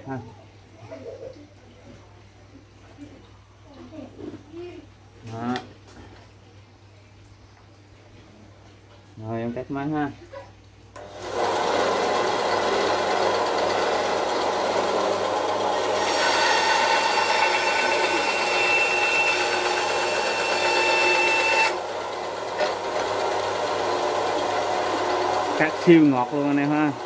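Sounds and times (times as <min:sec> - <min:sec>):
saw blade cutting wood: 0:11.0 - 0:21.9
band saw running: 0:11.0 - 0:27.0.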